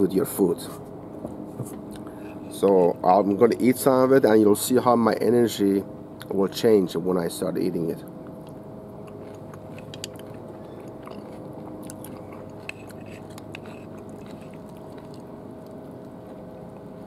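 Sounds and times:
steady low hum: 0:00.0 - 0:17.0
man chewing raw meat: 0:08.2 - 0:17.0
spoon scraping inside glass jar: 0:12.6 - 0:14.5.

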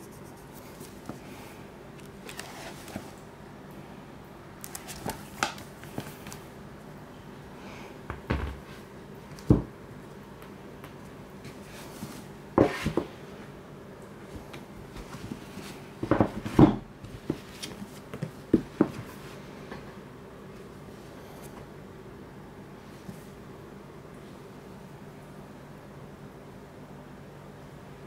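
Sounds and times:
books knocking on hard surface: 0:18.5 - 0:19.1.

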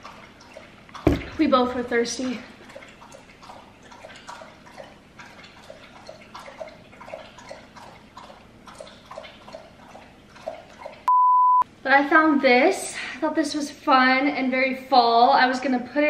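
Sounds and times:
water drips: 0:00.0 - 0:11.1.

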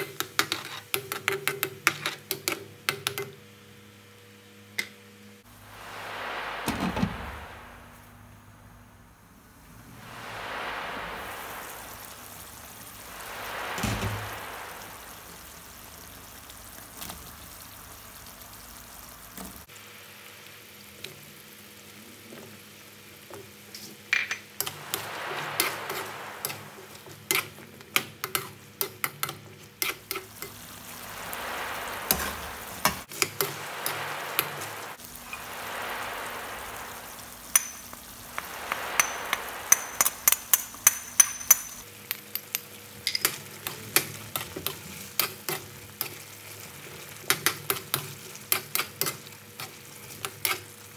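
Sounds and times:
curry bubbling in a pan: 0:11.2 - 0:41.7, 0:42.6 - 0:50.9.

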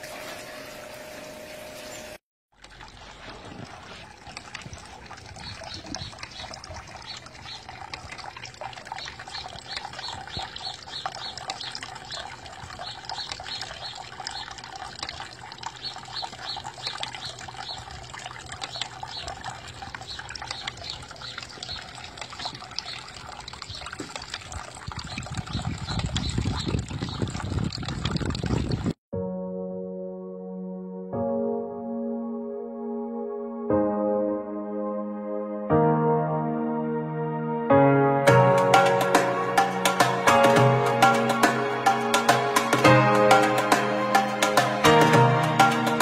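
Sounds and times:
fountain water trickling: 0:00.0 - 0:29.0, 0:38.5 - 0:46.0.

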